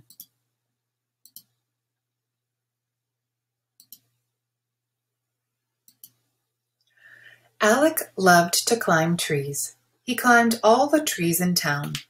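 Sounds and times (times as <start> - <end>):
computer mouse clicks: 0.0 - 0.4, 1.2 - 1.6, 3.8 - 4.2, 5.8 - 6.3.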